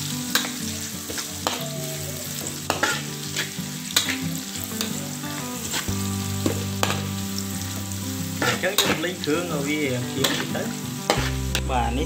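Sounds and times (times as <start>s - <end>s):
aromatics sizzling in hot oil: 0.0s - 12.0s
spatula scraping and clinking on wok: 2.7s - 5.0s, 6.4s - 7.1s, 10.2s - 11.6s.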